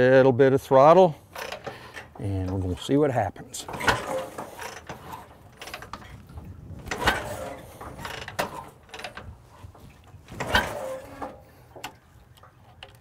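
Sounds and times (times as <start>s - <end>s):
motorcycle kick-start clatter: 1.4s - 2.2s, 3.6s - 6.2s, 6.8s - 9.3s, 10.3s - 12.0s.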